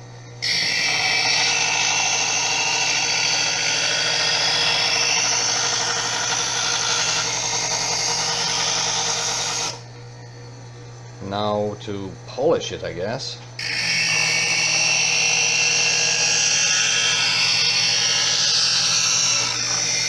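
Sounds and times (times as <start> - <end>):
motor hum: 0.0 - 20.0
knife grinding in electric sharpener: 0.4 - 9.9, 13.6 - 20.0.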